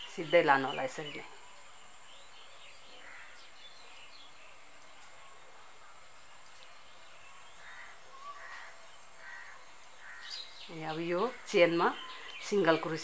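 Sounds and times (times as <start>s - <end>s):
birds chirping: 0.0s - 13.0s
steady high hiss: 0.0s - 13.0s
crows cawing: 3.0s - 3.5s, 7.6s - 10.6s.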